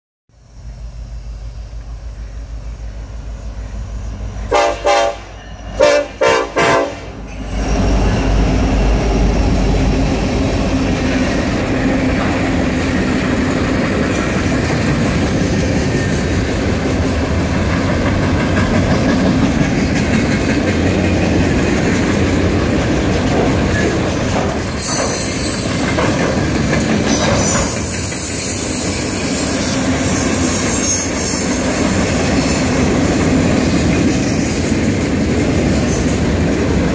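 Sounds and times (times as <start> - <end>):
locomotive deep rumble: 0.4 - 27.6
train horn blasts: 4.4 - 7.3
train wheels clattering on rail: 6.6 - 36.9
high-pitched wheel squeal: 24.6 - 26.0, 27.0 - 32.8.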